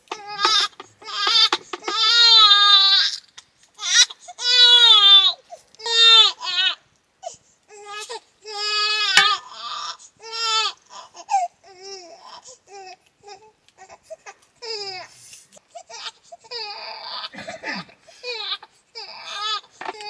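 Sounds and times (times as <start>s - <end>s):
baby crying: 0.1s - 3.2s, 3.8s - 6.8s, 15.8s - 17.3s, 18.2s - 20.0s.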